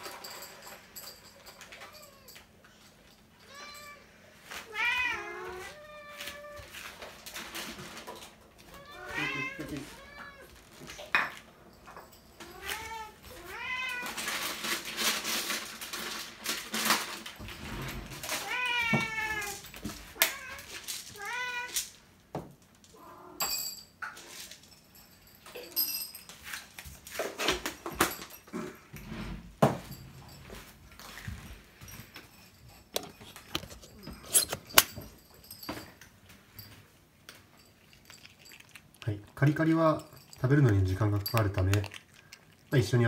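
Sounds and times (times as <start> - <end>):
cats meowing: 3.4 - 7.0, 8.6 - 10.8, 12.4 - 14.4, 18.3 - 21.9.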